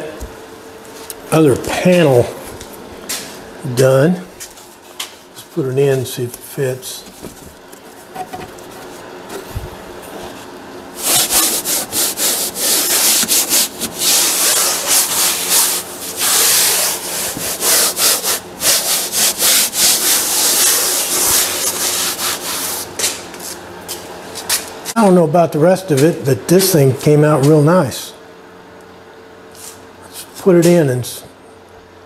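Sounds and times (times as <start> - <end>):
rubbing and scraping on wood: 7.0 - 23.6.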